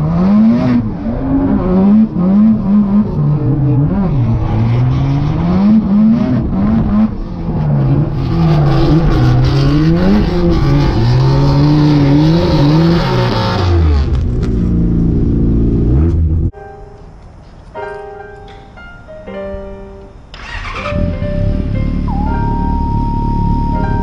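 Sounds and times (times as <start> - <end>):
car engine revving: 0.0 - 16.5.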